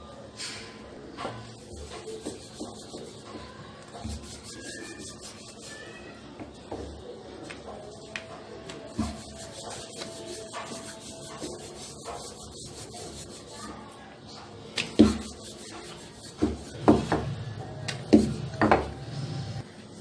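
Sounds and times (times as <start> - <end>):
rolling pin rubbing dough: 1.6 - 6.2, 8.8 - 14.0, 14.9 - 17.4.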